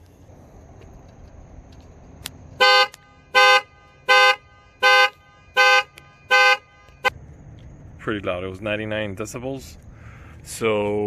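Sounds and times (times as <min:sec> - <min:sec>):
car horn blasts: 0:02.6 - 0:07.1.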